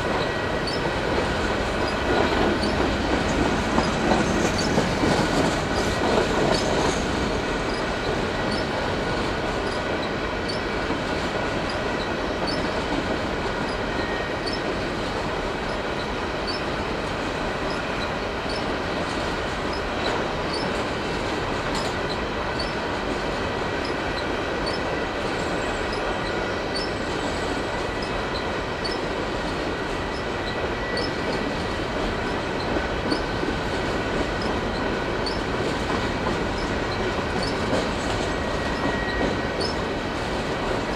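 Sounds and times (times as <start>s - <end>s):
train wheels rumbling on rails: 0.0s - 40.9s
wheel squeal: 0.1s - 1.0s, 1.8s - 7.0s, 7.6s - 8.8s, 9.6s - 10.7s, 11.6s - 12.8s, 13.6s - 14.7s, 15.6s - 16.7s, 17.6s - 18.7s, 19.7s - 20.8s, 21.7s - 22.9s, 23.8s - 29.1s, 30.0s - 33.4s, 34.2s - 35.6s, 36.5s - 40.0s.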